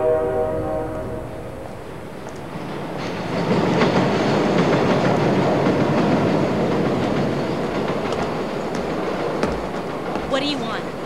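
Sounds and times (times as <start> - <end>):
train wheels clattering: 1.2 - 11.0.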